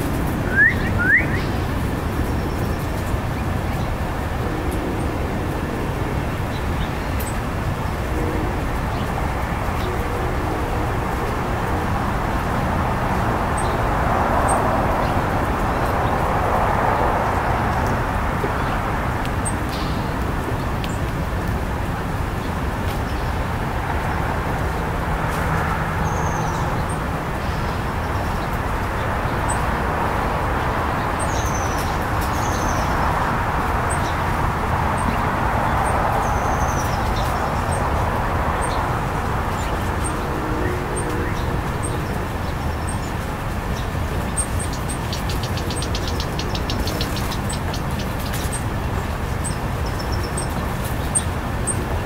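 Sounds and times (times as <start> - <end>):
road traffic: 0.0 - 52.0.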